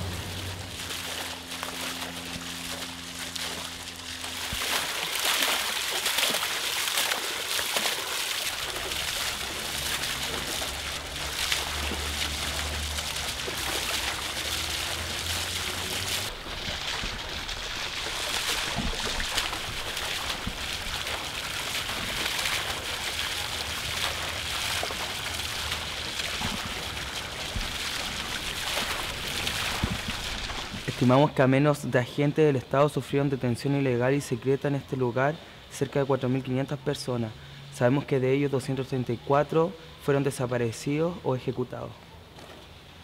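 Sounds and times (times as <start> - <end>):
low hum: 0.0 - 6.1
fountain water splashing: 0.0 - 42.2.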